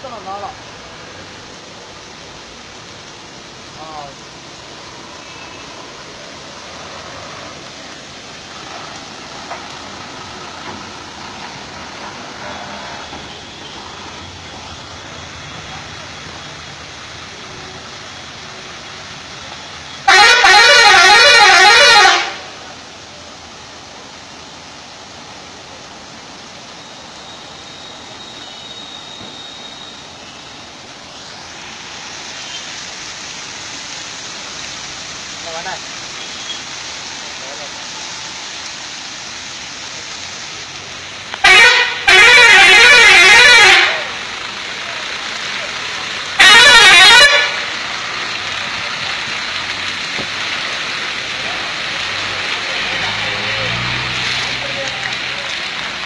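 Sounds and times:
steady hiss: 0.0 - 20.0, 22.4 - 41.5
musical air horn warbling: 20.0 - 22.5, 41.4 - 44.2, 46.4 - 47.7.

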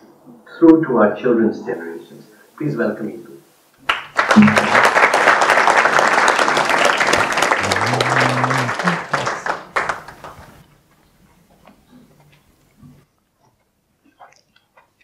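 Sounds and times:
audience applauding: 3.8 - 10.7.

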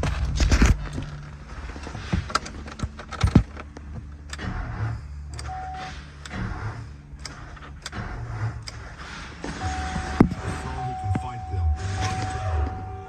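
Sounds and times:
steady low hum: 0.0 - 13.0
short electronic beep: 9.6 - 13.0.

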